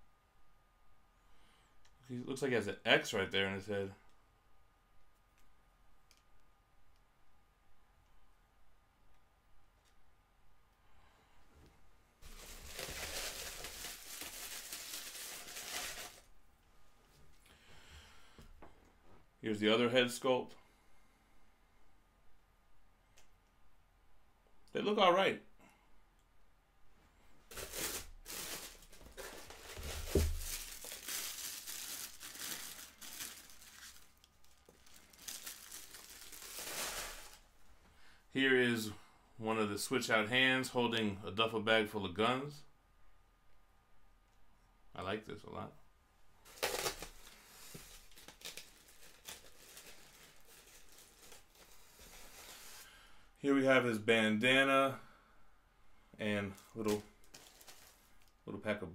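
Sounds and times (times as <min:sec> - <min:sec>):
packaging crinkling and rustling: 0:12.2 - 0:16.3, 0:27.5 - 0:37.5, 0:46.4 - 0:53.0, 0:56.6 - 0:58.4.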